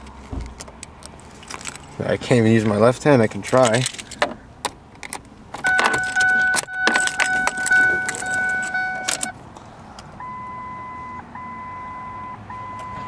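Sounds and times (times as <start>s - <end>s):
keys jangling in ignition: 0.0s - 4.3s, 4.9s - 9.4s
high warning tone: 5.6s - 9.4s
electronic warning chime: 5.7s - 9.3s.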